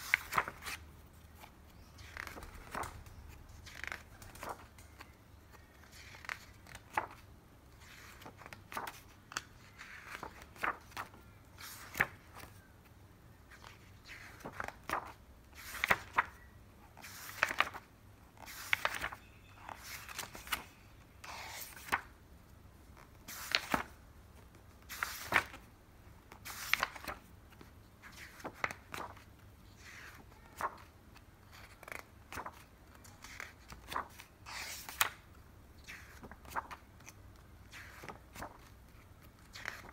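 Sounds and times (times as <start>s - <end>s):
book pages turning: 0.0s - 12.6s, 13.5s - 22.2s, 22.9s - 25.7s, 26.3s - 35.2s, 35.9s - 39.9s.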